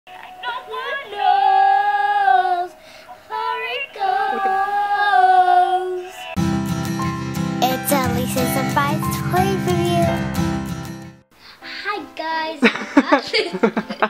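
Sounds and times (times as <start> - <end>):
girl singing unaccompanied: 0.1 - 6.2, 7.6 - 10.4
instrumental music jingle: 6.1 - 11.2.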